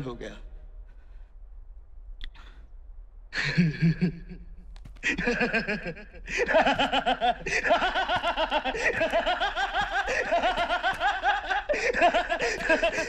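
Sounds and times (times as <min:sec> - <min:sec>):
men laughing loudly: 0:05.0 - 0:13.0.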